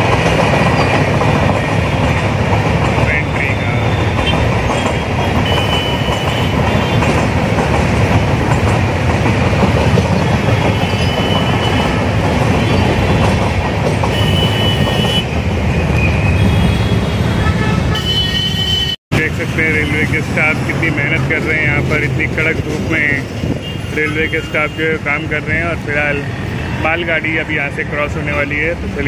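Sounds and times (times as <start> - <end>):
train rumbling on rails: 0.0 - 18.2, 19.1 - 29.0
high wheel squeals: 3.3 - 7.3, 10.1 - 13.4, 14.0 - 17.4.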